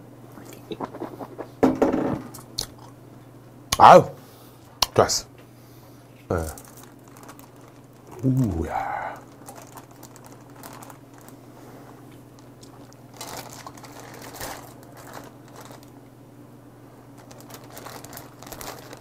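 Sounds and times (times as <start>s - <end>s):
steady low hum: 0.0s - 19.0s
plastic bag crinkling: 6.3s - 16.1s, 17.0s - 19.0s.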